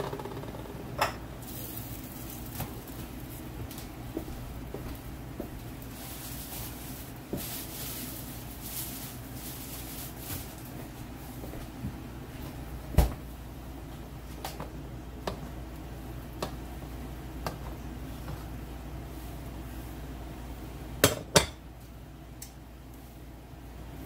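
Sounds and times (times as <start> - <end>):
steady low hum: 0.0 - 24.0
loud kitchen knock: 21.0 - 21.6.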